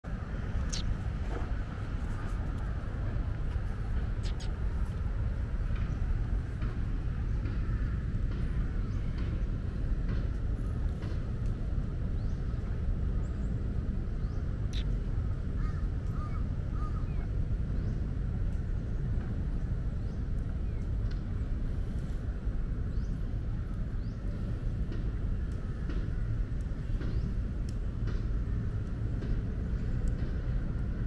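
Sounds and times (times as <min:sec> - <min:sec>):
city background rumble: 0:00.0 - 0:31.0
birds calling faintly: 0:00.1 - 0:11.2, 0:12.0 - 0:31.0.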